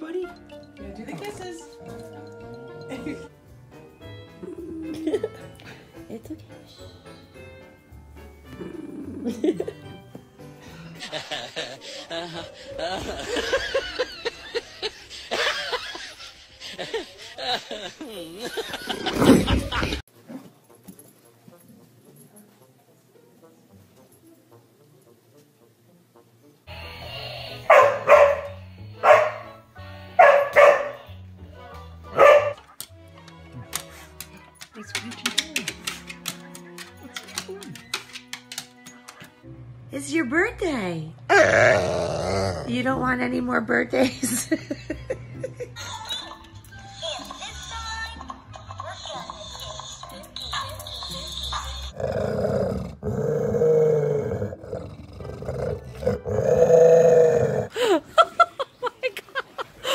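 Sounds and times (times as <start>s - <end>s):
music: 0.0s - 59.9s
pet growling: 8.4s - 9.6s, 41.3s - 42.8s, 51.9s - 57.7s
dog barking: 27.7s - 29.6s, 30.2s - 31.1s, 32.1s - 32.7s.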